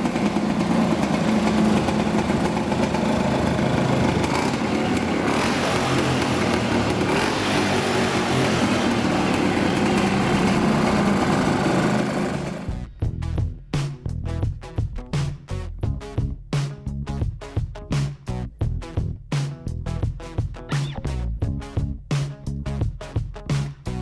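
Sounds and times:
two-stroke engine running: 0.0s - 12.9s.

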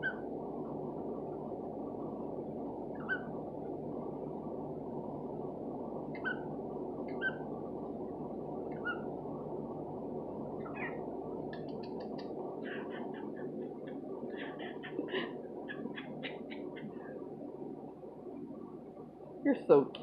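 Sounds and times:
cockatiel chirps: 3.0s - 3.3s.

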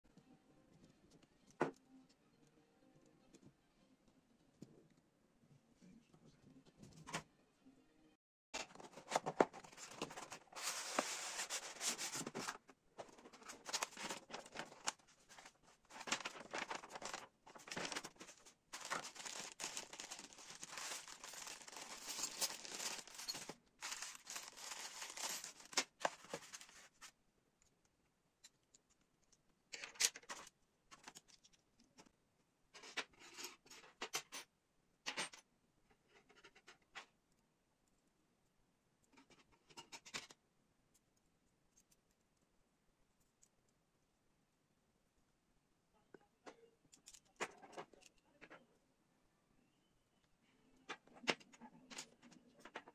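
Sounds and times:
plastic bag crinkling: 13.2s - 27.0s
metal parts clinking: 18.8s - 25.9s.

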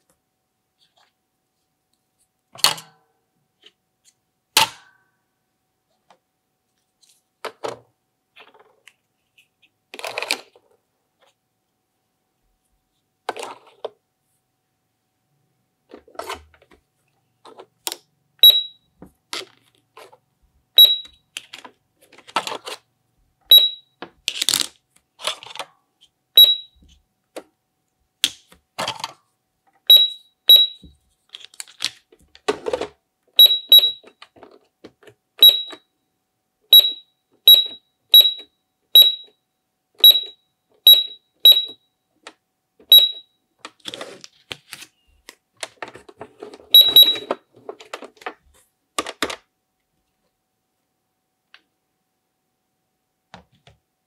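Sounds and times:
toy scanner beeping: 18.4s - 18.9s, 20.8s - 21.3s, 23.5s - 24.0s, 26.4s - 26.8s, 29.8s - 30.9s, 33.4s - 34.2s, 35.4s - 35.8s, 36.7s - 39.4s, 40.0s - 41.8s, 42.8s - 43.4s, 46.7s - 47.4s.

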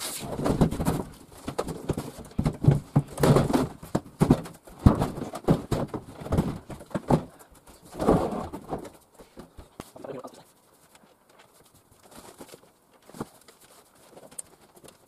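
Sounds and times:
wooden cupboard door knocks and rattles: 0.4s - 7.4s.

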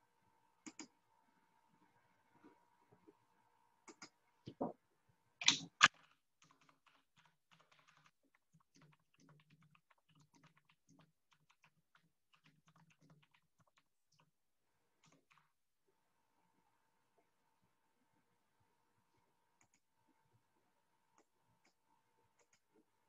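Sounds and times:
typing on computer keyboard: 5.4s - 14.3s, 15.0s - 15.6s, 22.4s - 22.7s.

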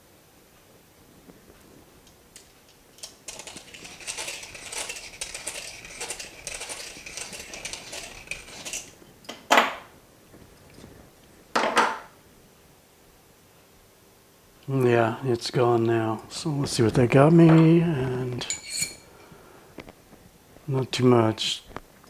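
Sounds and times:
deburring tool scraping metal: 3.0s - 9.0s, 18.4s - 19.0s.

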